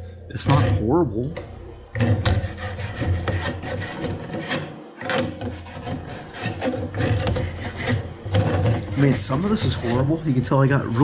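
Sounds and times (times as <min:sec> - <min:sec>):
wire brush scrubbing metal: 0:02.0 - 0:04.7, 0:05.4 - 0:11.0.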